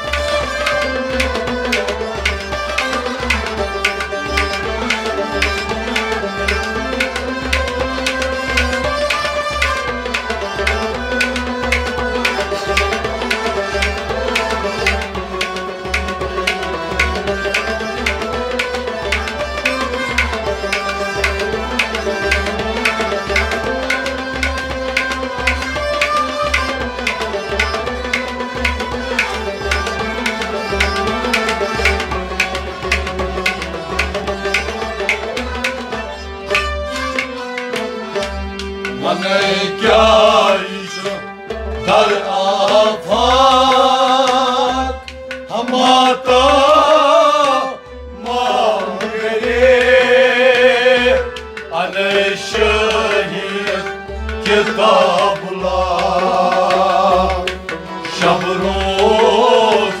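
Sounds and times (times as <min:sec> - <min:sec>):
harmonium and rabab playing: 0:00.0 - 1:00.0
man singing with vibrato: 0:38.9 - 1:00.0.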